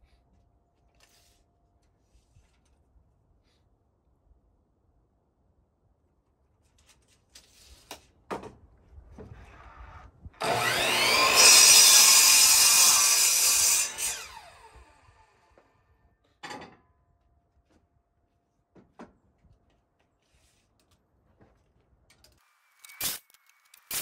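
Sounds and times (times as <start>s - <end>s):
miter saw motor whine: 10.4s - 15.4s
saw cutting wooden board: 10.4s - 15.5s, 22.8s - 24.0s.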